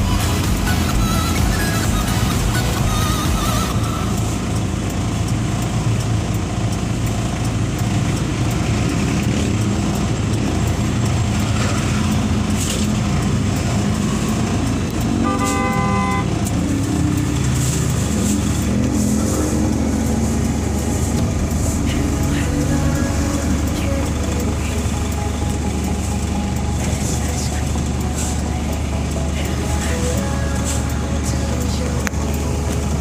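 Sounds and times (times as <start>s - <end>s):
street traffic: 0.0s - 33.0s
vehicle engine idling: 0.0s - 33.0s
vehicle horn honking: 15.2s - 16.4s.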